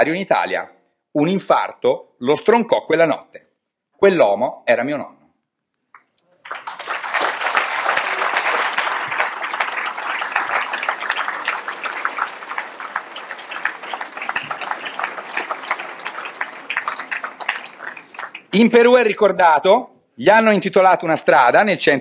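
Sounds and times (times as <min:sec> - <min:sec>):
audience applauding: 0:06.4 - 0:18.9.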